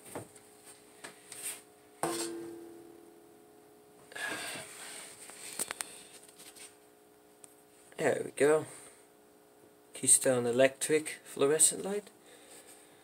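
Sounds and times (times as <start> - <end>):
knock on ringing metal housing: 2.0 - 3.2.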